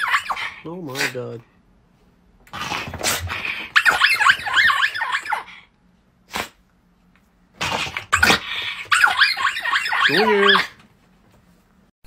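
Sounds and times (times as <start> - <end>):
dog yowling high-pitched: 0.0 - 0.6, 3.6 - 5.6, 8.2 - 10.8.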